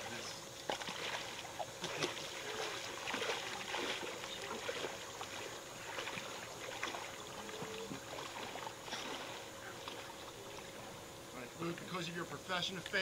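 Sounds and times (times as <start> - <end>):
small water splashes: 0.0 - 11.2
lake water lapping: 0.0 - 13.0.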